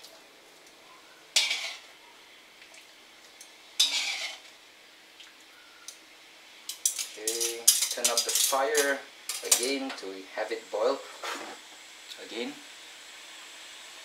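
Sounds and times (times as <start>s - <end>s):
metal tongs scraping a wok: 1.3s - 1.9s, 3.8s - 4.5s, 6.7s - 9.9s.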